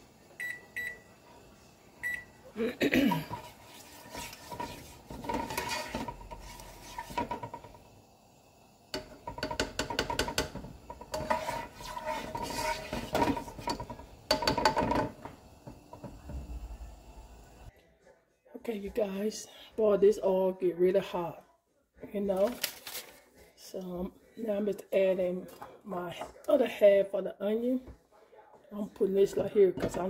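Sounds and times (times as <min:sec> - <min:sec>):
metal utensil scraping a pot: 0:03.2 - 0:07.8, 0:09.0 - 0:16.1.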